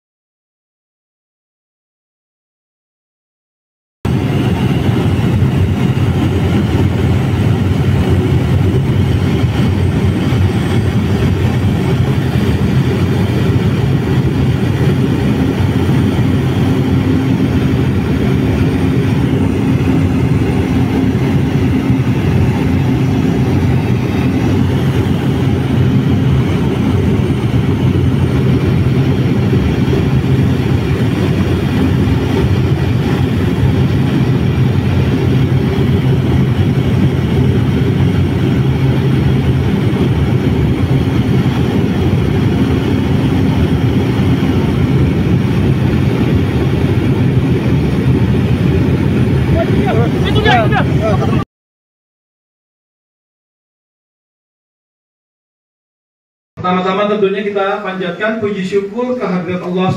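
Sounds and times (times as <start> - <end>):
aircraft engine drone in cabin: 4.1 - 51.5.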